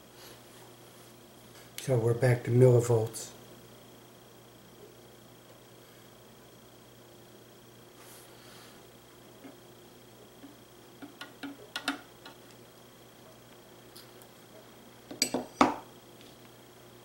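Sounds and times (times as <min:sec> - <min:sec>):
knocking on tabletop: 0:15.1 - 0:15.8.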